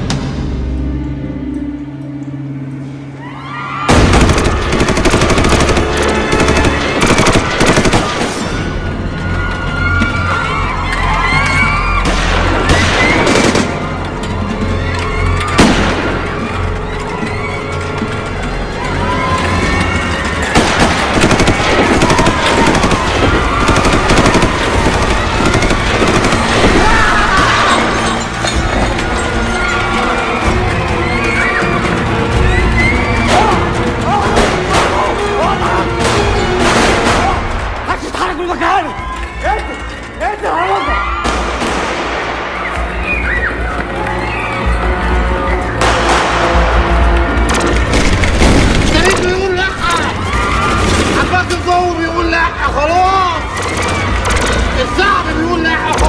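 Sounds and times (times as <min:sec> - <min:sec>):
background music: 0:00.0 - 0:56.0
video game machine-gun fire: 0:03.9 - 0:08.5, 0:20.5 - 0:27.2.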